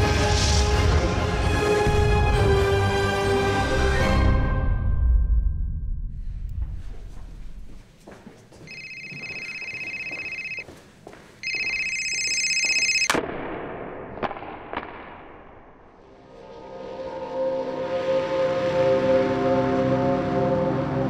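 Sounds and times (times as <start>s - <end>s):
telephone ringing: 8.6s - 10.6s, 11.4s - 13.1s.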